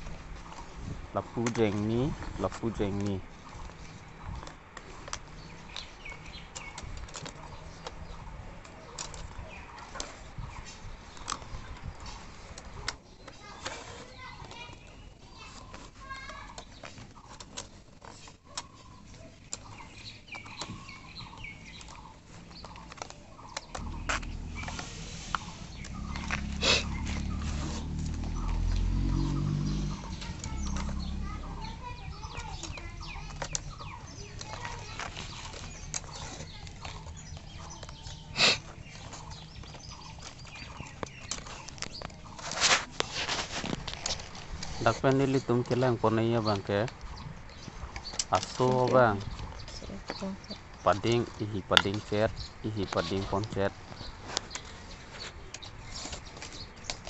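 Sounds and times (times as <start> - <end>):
faint chirping calls: 0.0 - 57.0
bamboo sticks clicking: 1.3 - 57.0.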